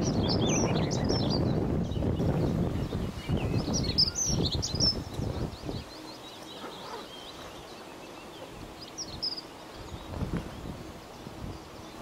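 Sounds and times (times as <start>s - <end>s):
songbird warbling: 0.0s - 12.0s.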